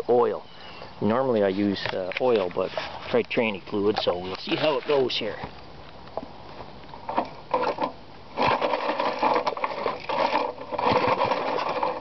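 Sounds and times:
recoil starter pulled rattling: 7.0 - 12.0.

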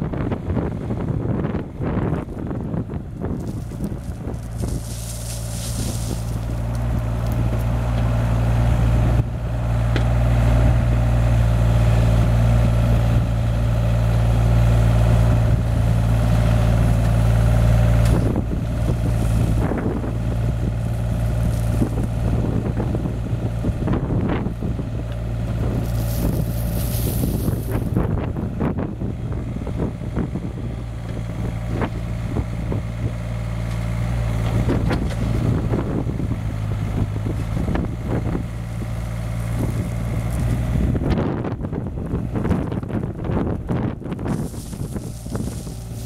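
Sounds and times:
excavator diesel engine running: 0.0 - 46.0
bucket digging gravel: 3.3 - 7.4, 21.3 - 22.0, 25.7 - 28.0, 44.2 - 46.0.

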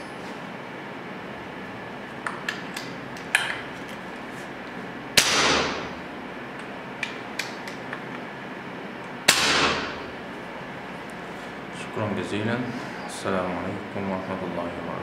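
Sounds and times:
air rifle firing: 5.2 - 6.0, 9.3 - 10.1.

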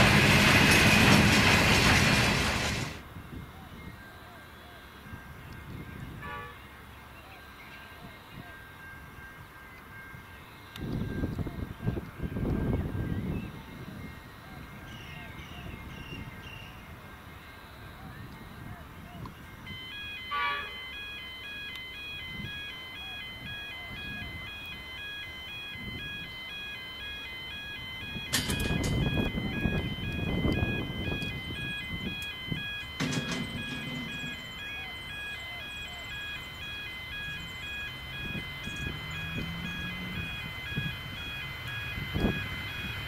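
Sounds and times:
train rumbling: 0.0 - 3.2, 28.0 - 43.0
level crossing bells ringing: 19.4 - 43.0.

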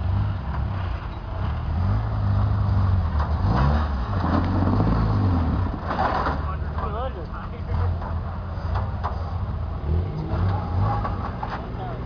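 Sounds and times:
engine running under load: 0.0 - 12.0.

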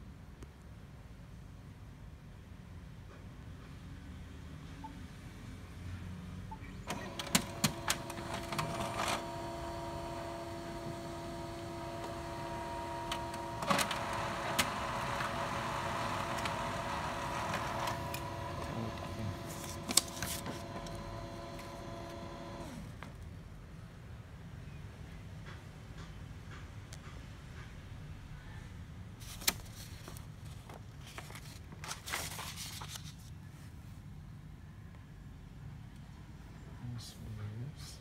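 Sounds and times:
printer clicks: 6.9 - 22.8
laser printer printing: 6.9 - 22.9.

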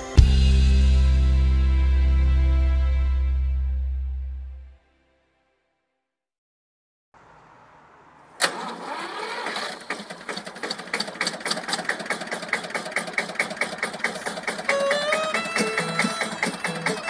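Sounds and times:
tractor engine starting and running: 7.2 - 17.0.

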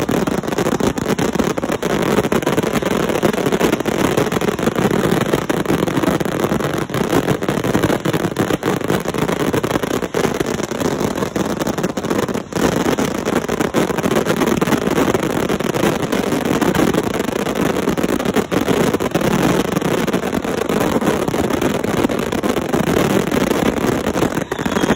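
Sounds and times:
firework barrage thumps and crackle: 0.0 - 24.9.

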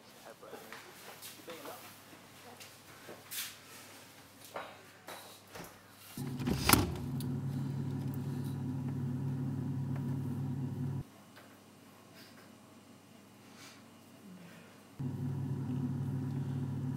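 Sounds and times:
refrigerator humming: 6.2 - 11.0, 15.0 - 16.9.

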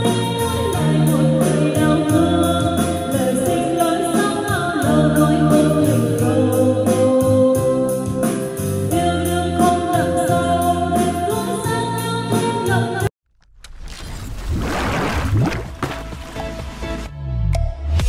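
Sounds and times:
karaoke backing track: 0.0 - 13.1
woman singing into a microphone: 0.0 - 13.1.

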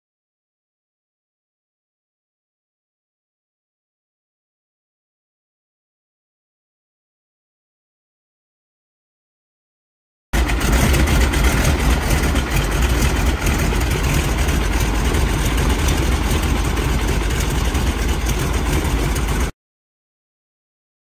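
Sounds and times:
propeller plane engine running: 10.4 - 19.5.

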